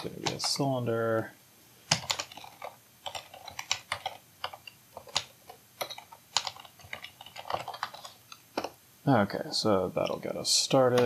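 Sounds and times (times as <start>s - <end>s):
typing on computer keyboard: 0.0s - 0.6s, 1.9s - 8.8s.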